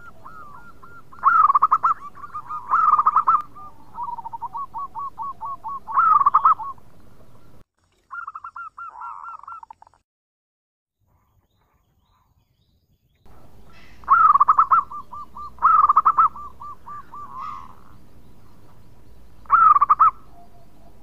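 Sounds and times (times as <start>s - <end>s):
dove cooing: 0.0s - 9.8s, 13.3s - 21.0s.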